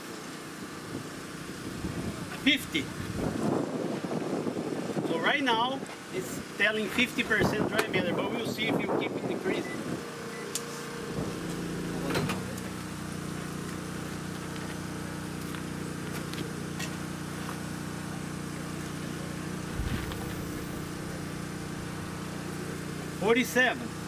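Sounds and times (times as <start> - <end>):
machine humming: 19.6 - 22.7
low thump: 19.7 - 21.2.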